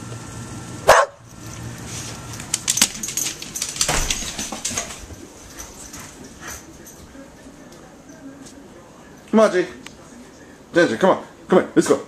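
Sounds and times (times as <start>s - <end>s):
dog barking: 0.8s - 1.2s.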